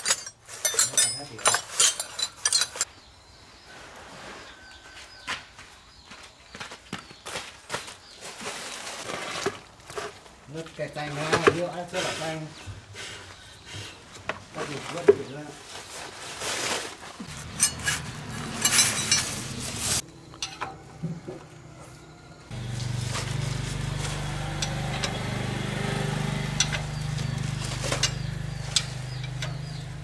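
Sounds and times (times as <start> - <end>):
spanner clinking and scraping metal: 0.0 - 2.9, 17.3 - 21.0, 24.0 - 30.0.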